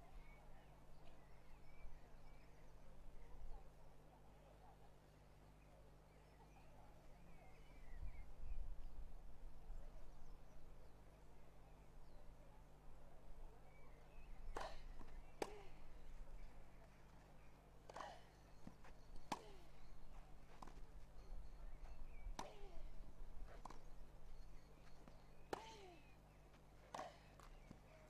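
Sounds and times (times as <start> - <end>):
tennis ball hit with rackets: 14.5 - 15.7, 22.4 - 22.8.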